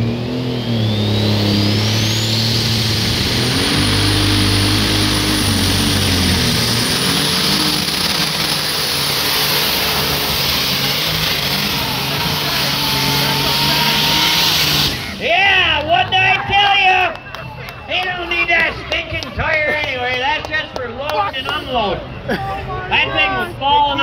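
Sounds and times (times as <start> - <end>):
tractor engine running under load: 0.0 - 15.2.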